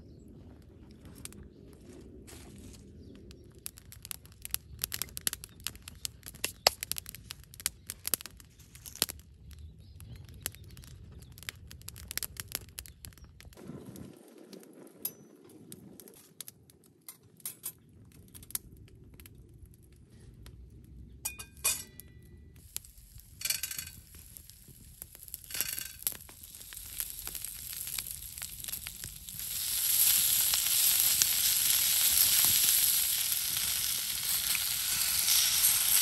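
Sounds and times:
wood fire crackling and popping: 0:02.3 - 0:13.6, 0:14.8 - 0:20.9, 0:22.0 - 0:36.0
frying pan clinking on grate: 0:21.3 - 0:22.1, 0:23.4 - 0:24.0.

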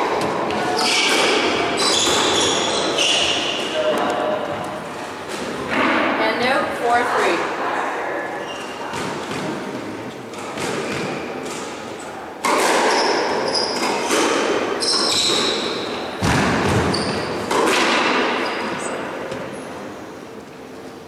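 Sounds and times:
squash ball hits ringing: 0:00.2 - 0:04.6
shoes squeaking on wooden floor: 0:01.7 - 0:05.3, 0:12.9 - 0:16.1, 0:16.8 - 0:17.6.

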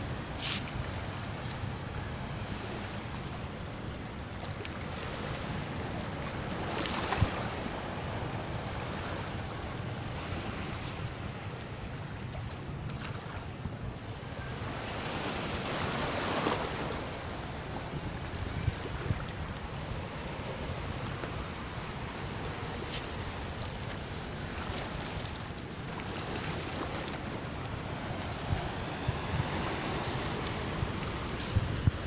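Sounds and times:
wind buffeting microphone: 0:05.8 - 0:32.0
sea waves washing against rocks: 0:14.6 - 0:32.0.

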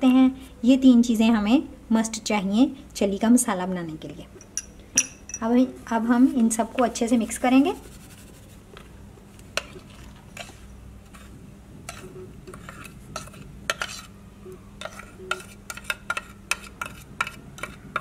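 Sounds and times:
metal spoon tapping and scraping bowl: 0:11.9 - 0:14.1, 0:14.8 - 0:18.0.

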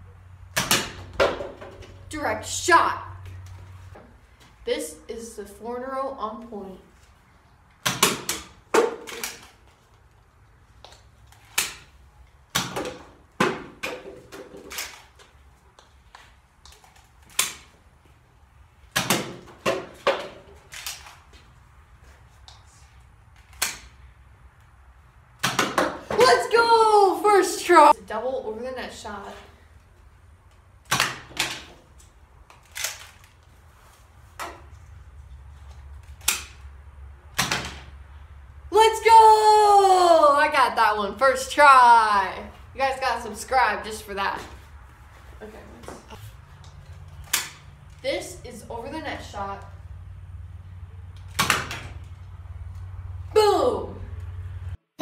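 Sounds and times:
darts hitting plastic bottles: 0:00.6 - 0:01.9, 0:07.8 - 0:09.6, 0:12.5 - 0:15.0, 0:18.9 - 0:21.0, 0:25.4 - 0:26.3, 0:30.8 - 0:31.8, 0:37.4 - 0:37.9.

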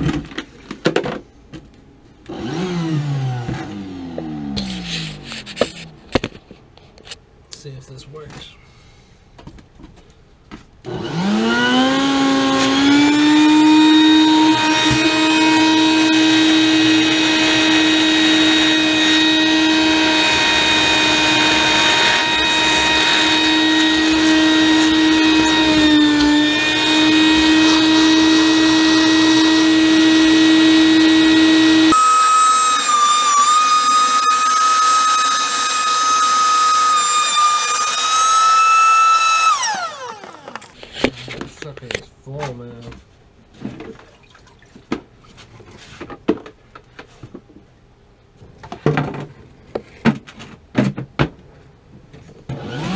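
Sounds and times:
shop vacuum running: 0:02.2 - 0:05.3, 0:10.8 - 0:40.8, 0:52.5 - 0:52.9.

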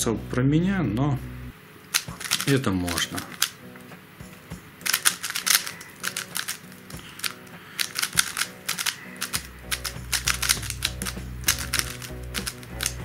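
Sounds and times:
speed cube plastic clicking: 0:01.9 - 0:03.6, 0:04.8 - 0:13.0.

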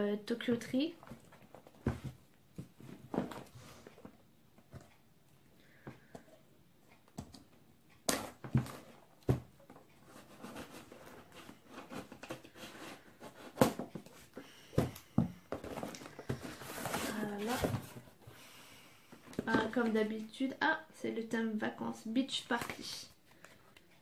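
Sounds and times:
box knocking and scraping on table: 0:14.8 - 0:18.1.

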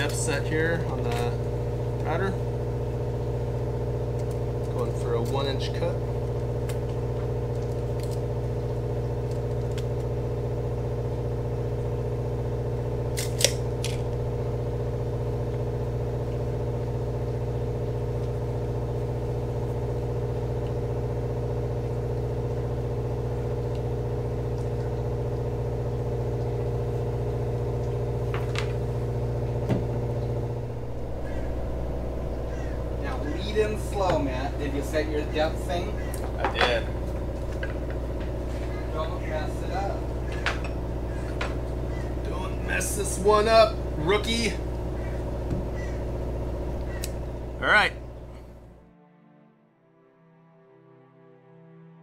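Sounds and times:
low machine hum: 0:00.0 - 0:52.0.

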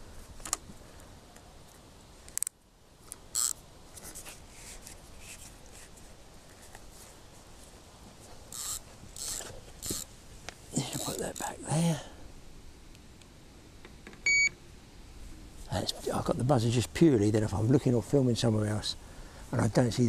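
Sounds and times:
fishing reel clicking: 0:03.3 - 0:03.6, 0:08.5 - 0:10.1.

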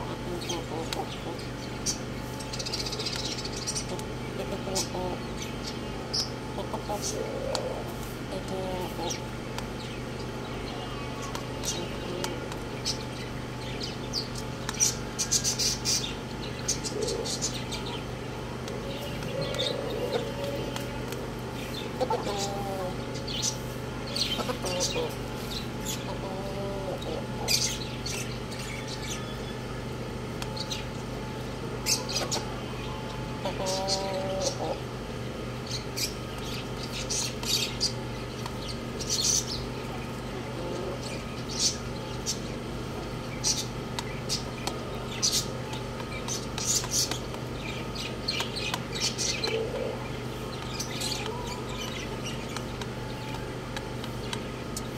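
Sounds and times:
steady low hum: 0:00.0 - 0:54.9
chicks chirping: 0:08.3 - 0:29.7, 0:31.8 - 0:34.9
rooster calling: 0:10.4 - 0:12.5, 0:18.4 - 0:27.7, 0:31.9 - 0:35.0.

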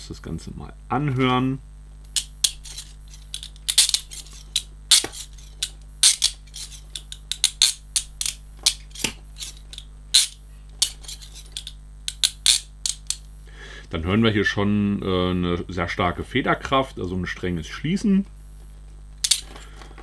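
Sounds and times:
leg iron ratcheting clicks: 0:02.1 - 0:13.3.

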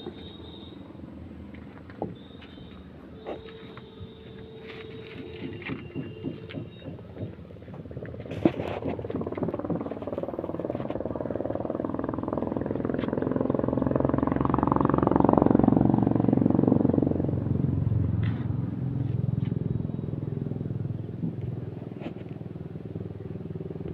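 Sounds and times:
vehicle engine passing: 0:04.6 - 0:23.9.

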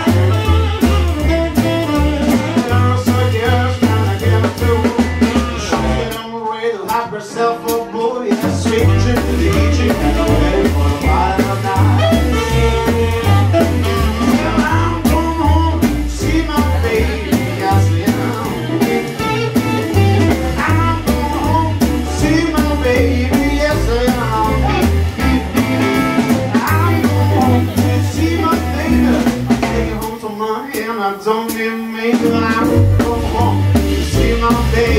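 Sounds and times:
electric guitar: 0:00.0 - 0:06.1, 0:08.6 - 0:30.3
drums with cymbal strokes: 0:00.0 - 0:06.2, 0:07.7 - 0:34.9
bass line: 0:00.0 - 0:06.4, 0:07.7 - 0:30.5, 0:31.7 - 0:34.9
man singing: 0:00.0 - 0:34.9.

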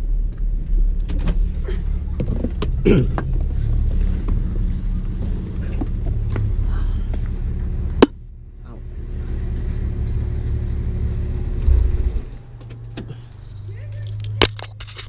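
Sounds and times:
car engine idling: 0:00.0 - 0:14.9
car door shutting: 0:11.6 - 0:13.2.

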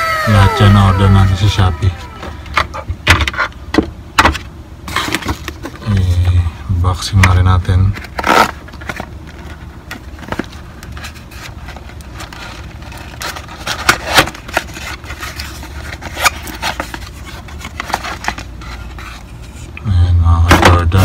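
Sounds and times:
cardboard box scraping and rubbing: 0:10.2 - 0:19.7.

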